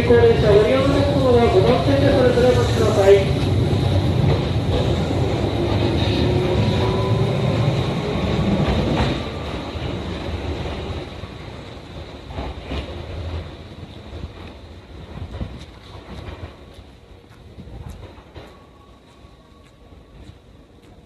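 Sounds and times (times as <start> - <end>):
electric train rumbling: 0.0 - 21.0
train wheels clacking: 12.0 - 21.0.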